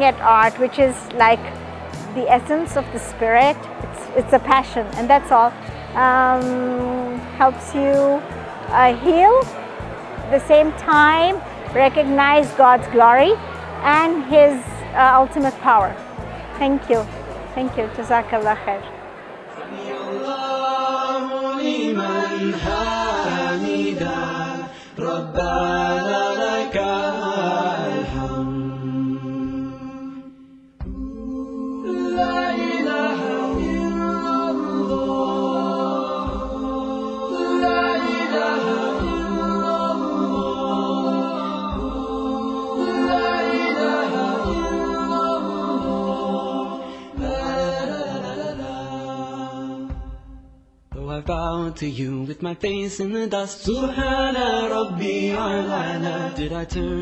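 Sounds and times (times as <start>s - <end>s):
singers holding long notes: 0.0s - 50.2s, 53.6s - 57.0s.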